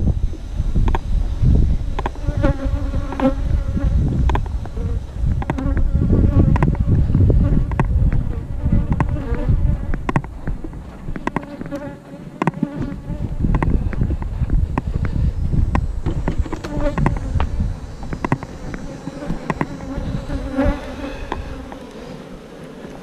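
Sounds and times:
wind rumble on microphone: 0:00.0 - 0:22.4
bees buzzing: 0:00.0 - 0:23.0
wooden hive frames knocking: 0:02.0 - 0:06.9, 0:07.5 - 0:21.9.

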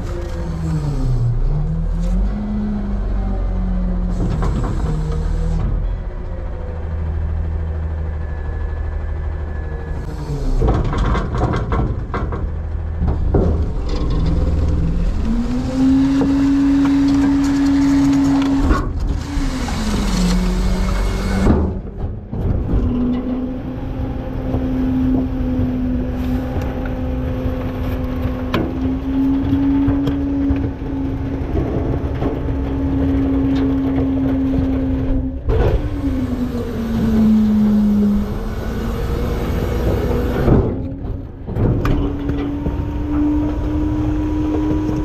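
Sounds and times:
garbage truck engine revving: 0:00.0 - 0:45.0
clanking and rattling of metal: 0:10.4 - 0:37.9, 0:39.4 - 0:45.0.

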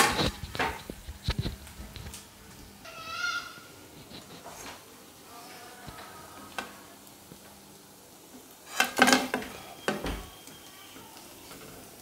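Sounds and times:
metal spoon scraping a pan: 0:08.6 - 0:10.0.

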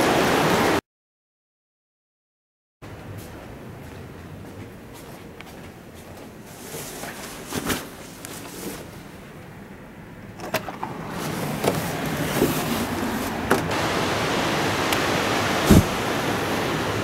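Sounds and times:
rushing river water: 0:00.0 - 0:00.8, 0:10.8 - 0:17.0
heavy thump: 0:15.7 - 0:16.0.

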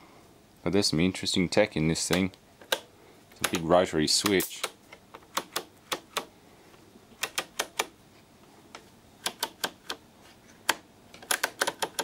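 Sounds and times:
rotary switch clicking: 0:02.1 - 0:06.3, 0:07.2 - 0:07.9, 0:09.2 - 0:10.0, 0:10.6 - 0:12.0.

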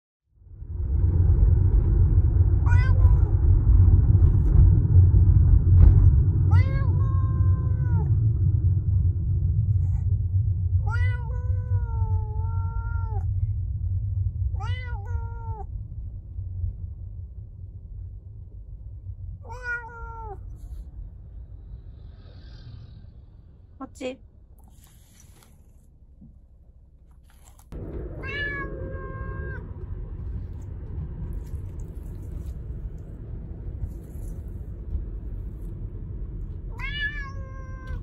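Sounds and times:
low rumble of car: 0:00.2 - 0:38.0
cat meowing: 0:02.6 - 0:03.4, 0:06.5 - 0:08.1, 0:10.8 - 0:13.3, 0:14.6 - 0:15.7, 0:19.4 - 0:20.8, 0:28.2 - 0:29.6, 0:36.7 - 0:38.0.

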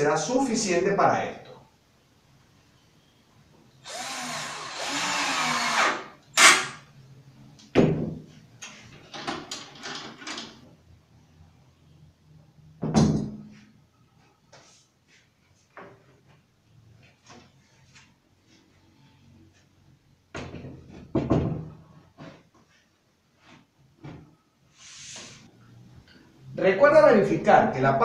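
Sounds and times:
drill driving a screw: 0:03.8 - 0:06.8.

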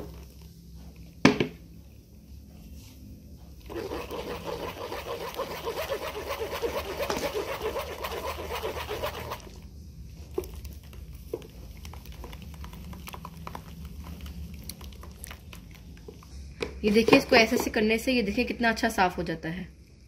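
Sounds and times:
wet squelching and sloshing: 0:03.6 - 0:16.5.

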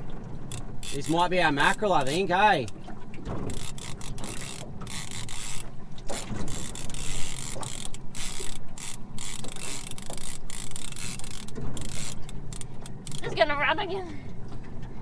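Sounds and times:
fishing reel ratchet clicking: 0:00.5 - 0:02.3, 0:03.4 - 0:13.3.

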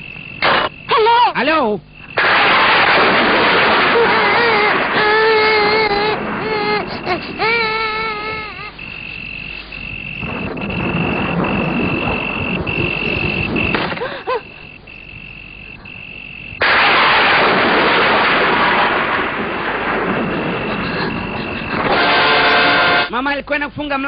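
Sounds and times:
brief wavering cry: 0:03.8 - 0:09.2
steady high tone: 0:04.0 - 0:16.6, 0:20.5 - 0:23.1
low rumble: 0:08.7 - 0:13.9
loud rainstorm: 0:10.2 - 0:14.0, 0:16.6 - 0:23.1.

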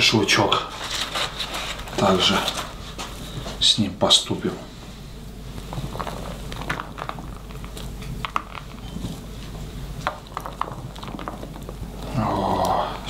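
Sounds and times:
steady low hum: 0:00.0 - 0:13.0
food being handled: 0:05.5 - 0:12.2.

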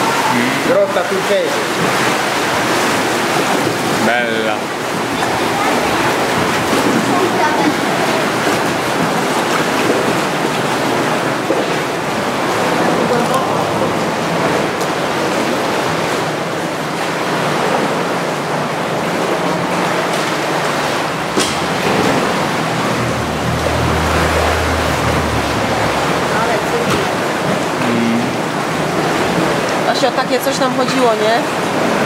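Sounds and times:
seawater sloshing against rock: 0:00.9 - 0:27.8
low steady hum: 0:20.1 - 0:29.8.

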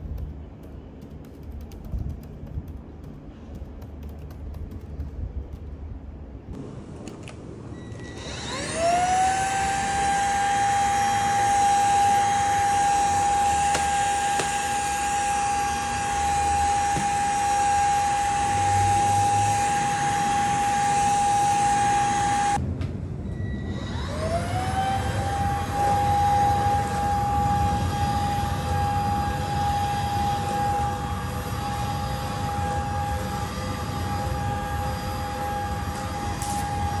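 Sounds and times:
vacuum cleaner motor whine: 0:07.7 - 0:22.6, 0:23.4 - 0:37.0.

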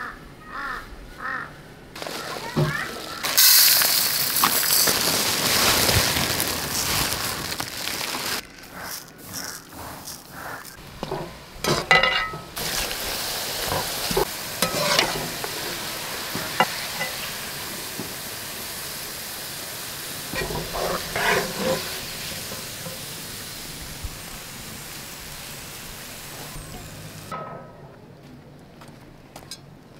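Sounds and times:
onions sizzling in oil: 0:02.0 - 0:08.4, 0:10.4 - 0:27.3
metal skimmer scraping pot: 0:10.8 - 0:13.0, 0:13.6 - 0:15.6, 0:20.3 - 0:23.1.

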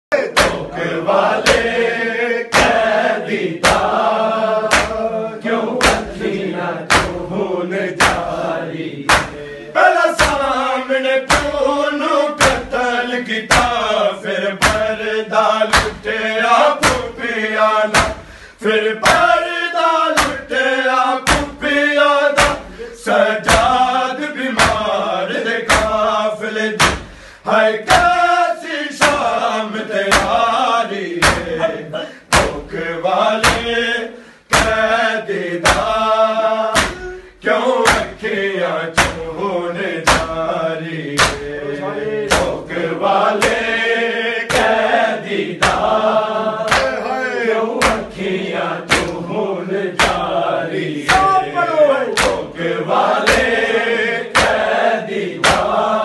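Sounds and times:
men chanting a lament: 0:00.1 - 0:56.0
hands slapping chests: 0:00.4 - 0:01.9, 0:02.5 - 0:05.1, 0:05.7 - 0:09.6, 0:10.2 - 0:10.7, 0:11.3 - 0:11.8, 0:12.4 - 0:12.9, 0:13.5 - 0:15.0, 0:15.6 - 0:16.2, 0:16.8 - 0:17.2, 0:17.8 - 0:18.4, 0:19.0 - 0:19.5, 0:20.1 - 0:26.2, 0:26.8 - 0:27.3, 0:27.9 - 0:28.3, 0:28.9 - 0:33.8, 0:34.5 - 0:38.3, 0:38.9 - 0:39.4, 0:40.0 - 0:40.5, 0:41.1 - 0:43.8, 0:44.5 - 0:49.3, 0:49.9 - 0:56.0.

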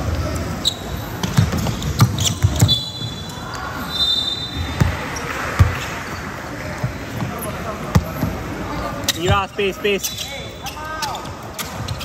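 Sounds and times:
shoe squeaks: 0:00.1 - 0:12.0
basketball bouncing on wooden court: 0:01.1 - 0:03.0, 0:04.6 - 0:05.9.

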